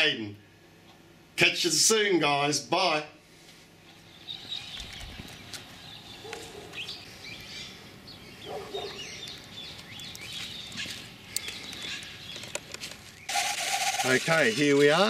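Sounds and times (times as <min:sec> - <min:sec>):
birds chirping: 0:03.4 - 0:15.0.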